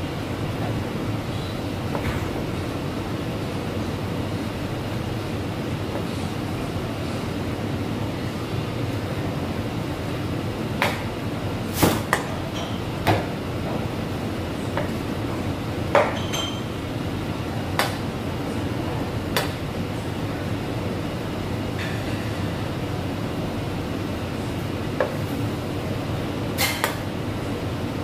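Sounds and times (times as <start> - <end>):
utensils and pans clinking: 16.0 - 16.7.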